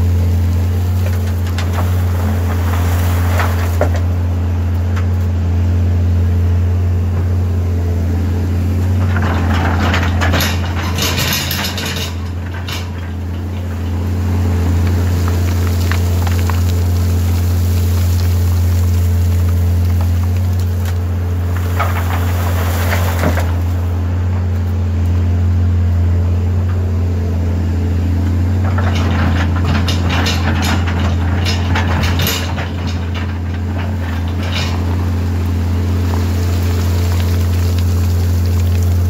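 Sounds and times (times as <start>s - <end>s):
excavator diesel engine droning: 0.0s - 39.0s
rocks clattering: 0.6s - 4.2s, 8.9s - 24.6s, 28.6s - 39.0s.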